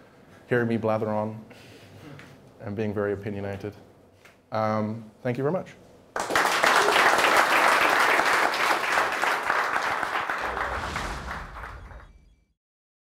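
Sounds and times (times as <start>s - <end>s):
audience applauding: 6.2s - 12.1s
low whoosh: 10.3s - 12.6s.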